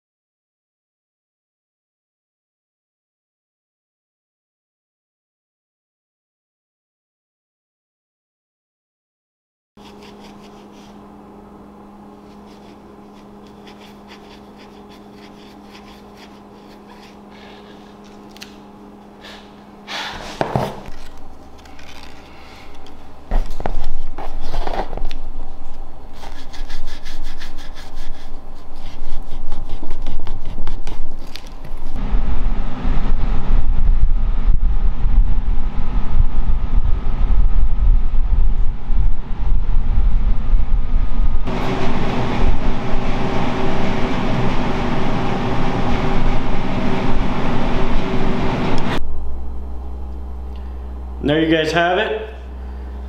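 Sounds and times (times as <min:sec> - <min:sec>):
steel wool rasping on skull: 0:09.8 - 0:11.0, 0:12.1 - 0:18.5, 0:26.1 - 0:32.0
faint steady hum: 0:09.8 - 0:20.2, 0:20.8 - 0:53.0
low rumble on microphone: 0:31.8 - 0:51.2.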